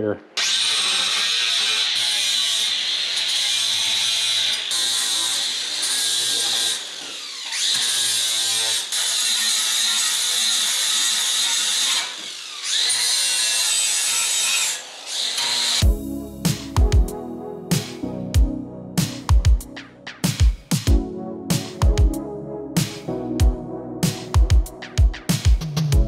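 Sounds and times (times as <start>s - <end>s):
angle grinder grinding metal: 0.4s - 15.9s.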